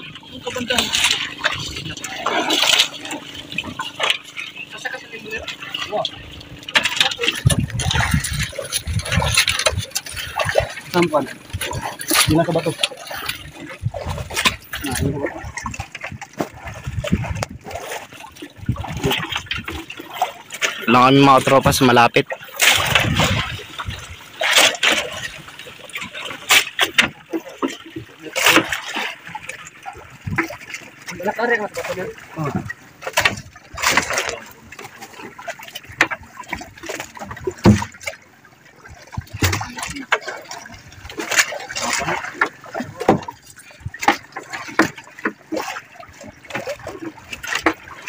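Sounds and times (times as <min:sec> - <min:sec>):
water lapping against hull: 0:00.0 - 0:48.0
net splashing into water: 0:22.5 - 0:30.8.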